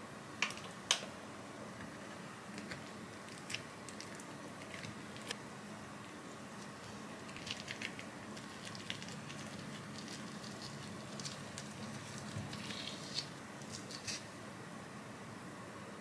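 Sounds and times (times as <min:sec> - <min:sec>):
cling wrap crinkling: 0:06.6 - 0:14.3.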